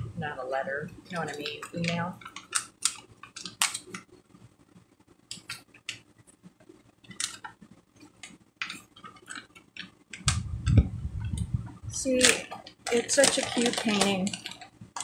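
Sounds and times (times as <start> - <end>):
canvas and plastic film crinkling: 1.0 - 4.0, 12.0 - 15.0
sharp crackles: 8.6 - 15.0.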